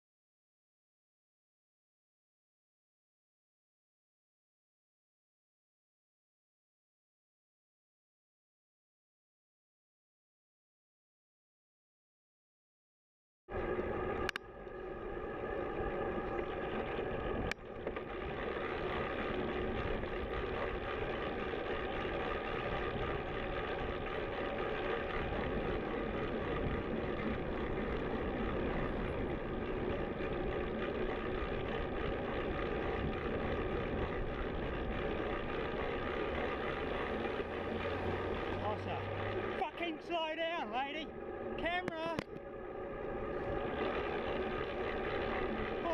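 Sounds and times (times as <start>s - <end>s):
cycle riding drone: 13.5s - 45.9s.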